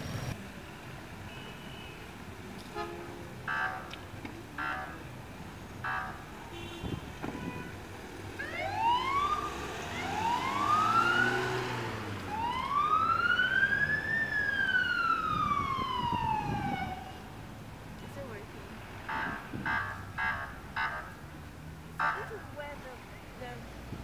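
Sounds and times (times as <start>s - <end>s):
ambulance siren wailing: 3.4s - 4.0s, 4.6s - 5.1s, 5.8s - 6.4s, 8.3s - 17.4s, 19.1s - 21.2s, 22.0s - 22.4s.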